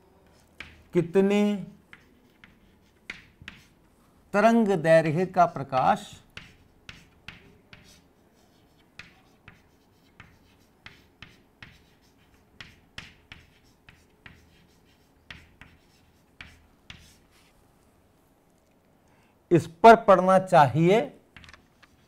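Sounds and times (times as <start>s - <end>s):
chalk tapping and scratching: 0.2s - 4.1s, 6.0s - 17.6s, 21.4s - 22.0s.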